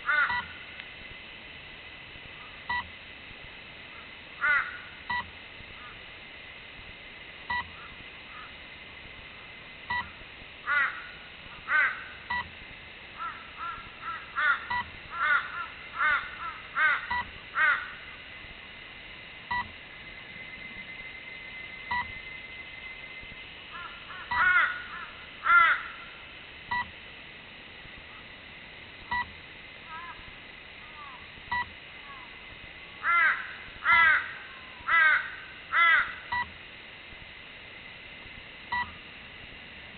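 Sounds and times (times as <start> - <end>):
bird calling: 0.0 - 0.6, 7.6 - 8.6, 13.2 - 18.2, 23.7 - 26.2, 29.9 - 30.2
high electronic beep: 21.7 - 22.2.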